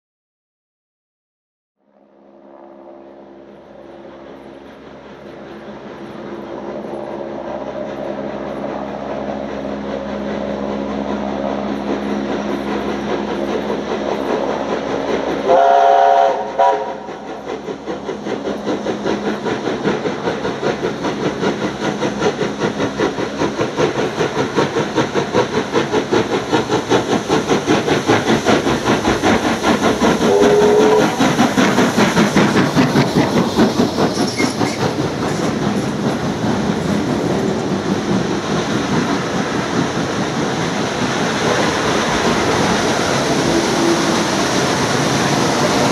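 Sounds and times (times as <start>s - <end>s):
steam locomotive exhaust beats: 1.9s - 45.9s
steam whistle blowing: 15.4s - 17.0s, 30.3s - 31.2s.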